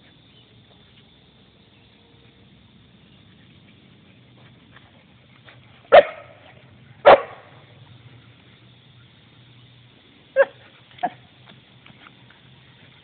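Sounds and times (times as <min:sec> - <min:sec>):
dog barking: 0:05.9 - 0:06.4, 0:07.0 - 0:07.5, 0:10.4 - 0:11.2.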